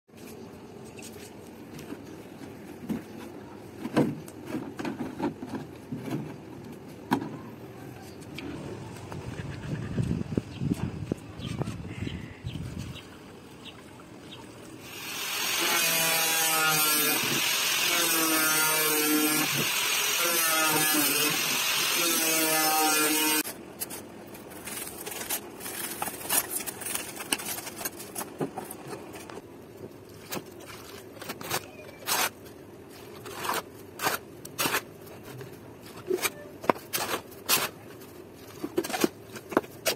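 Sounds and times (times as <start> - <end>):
angle grinder cutting plastic: 14.8 - 23.6
knife scraping polystyrene foam: 31.0 - 35.4, 36.0 - 39.9.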